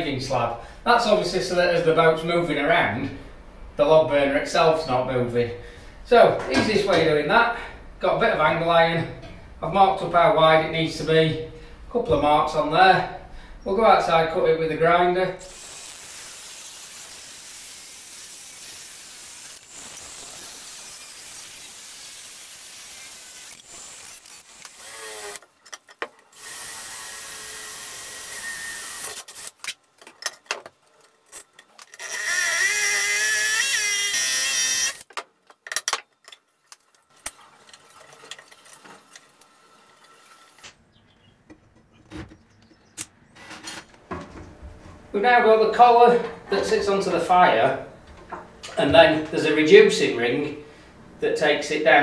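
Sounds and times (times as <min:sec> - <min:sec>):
angle grinder cutting steel: 0:15.4 - 0:25.4, 0:26.3 - 0:29.6, 0:32.0 - 0:35.1
cordless drill whining: 0:15.5 - 0:25.4, 0:26.4 - 0:29.5, 0:32.0 - 0:35.1.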